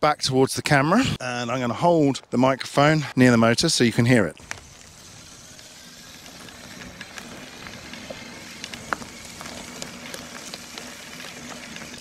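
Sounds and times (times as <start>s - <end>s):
bike tyres crunching over gravel: 4.3s - 12.0s
faint motor hum: 4.4s - 12.0s.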